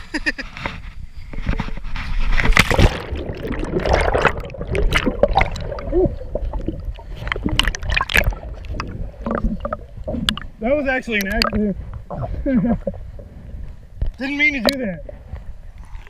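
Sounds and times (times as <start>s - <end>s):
loud splash into water: 2.5s - 6.0s
underwater bubbles gurgling: 2.6s - 10.6s, 11.2s - 16.0s.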